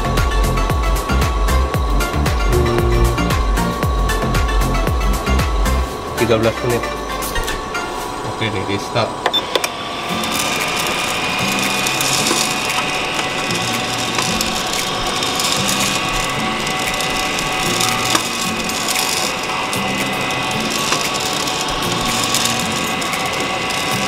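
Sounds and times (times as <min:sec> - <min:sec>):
motor whine: 0:00.0 - 0:24.0
coffee beans rattling and tumbling: 0:09.6 - 0:24.0.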